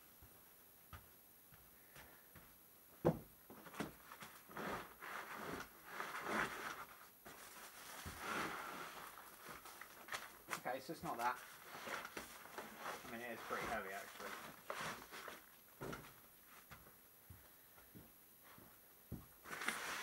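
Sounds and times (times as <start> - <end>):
plastic rustling and scraping: 3.6 - 16.2, 19.4 - 20.0.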